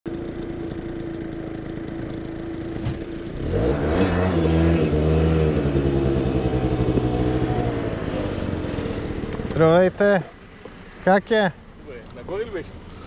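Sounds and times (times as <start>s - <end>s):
scooter engine revving: 0.3s - 9.7s.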